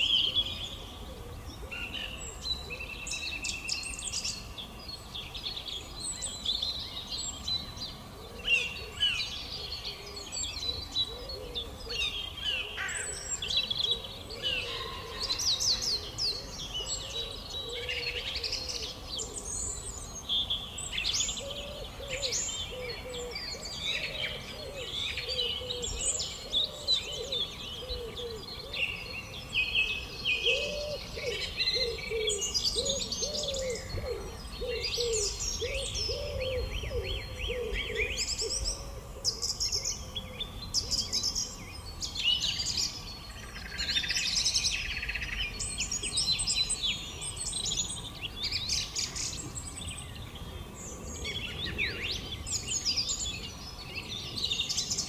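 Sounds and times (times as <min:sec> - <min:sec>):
birds singing and chirping: 0:00.0 - 0:55.0.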